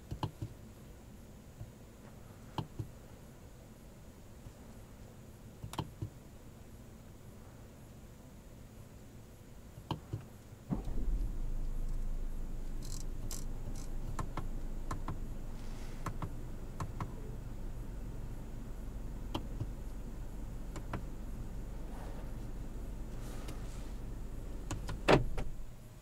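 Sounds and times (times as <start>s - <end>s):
car cabin hum: 9.9s - 26.0s.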